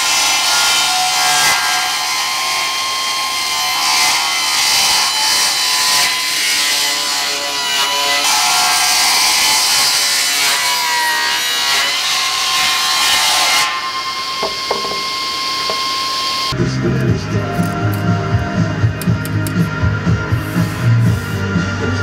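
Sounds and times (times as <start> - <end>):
circular saw cutting log: 0.0 - 22.0
saw blade whining freely: 11.9 - 22.0.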